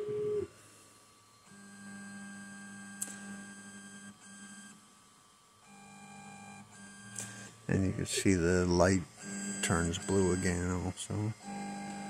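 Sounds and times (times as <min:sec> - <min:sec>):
stepper motors humming: 0:06.8 - 0:12.0.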